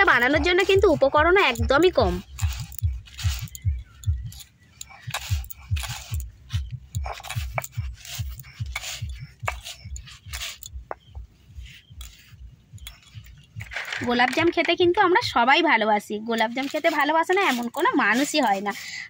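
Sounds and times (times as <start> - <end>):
stone roller grinding on stone slab: 0.0 - 11.0, 16.4 - 19.0.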